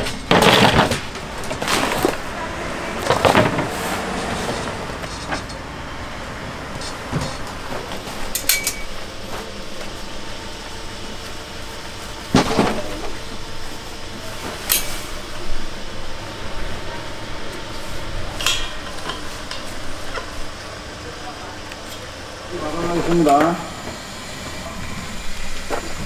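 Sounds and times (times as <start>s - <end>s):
steady background noise: 0.0s - 26.0s
kitchen utensils clinking: 8.3s - 9.0s, 18.3s - 20.3s.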